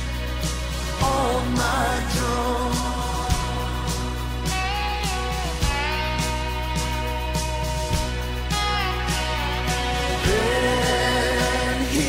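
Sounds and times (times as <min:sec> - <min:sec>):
pop song with steady beat: 0:00.0 - 0:12.0
person singing: 0:00.8 - 0:05.7, 0:10.0 - 0:12.0.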